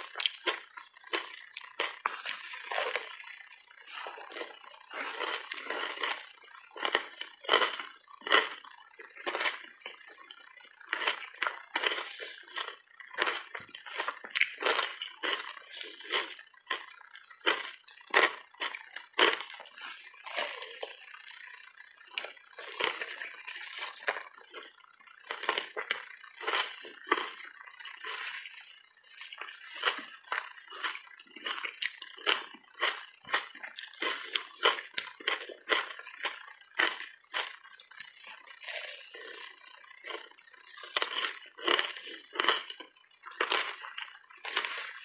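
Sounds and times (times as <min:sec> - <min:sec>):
wet chewing mouth sounds: 0:00.0 - 0:45.0
ice crunching: 0:03.8 - 0:08.6, 0:22.1 - 0:45.0.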